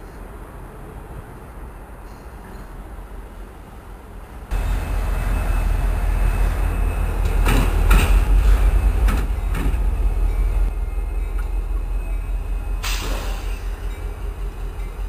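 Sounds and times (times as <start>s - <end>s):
diesel locomotive rumbling past: 4.5s - 15.0s
wheels clacking on rail joints: 4.5s - 15.0s.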